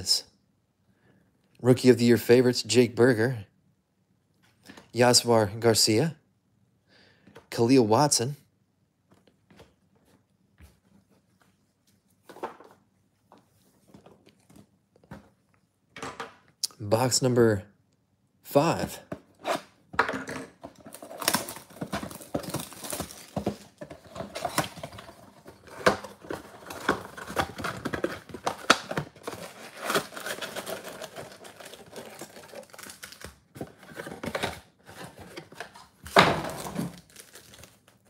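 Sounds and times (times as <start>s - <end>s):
wrapping crinkling: 20.8s - 34.4s, 36.6s - 38.0s.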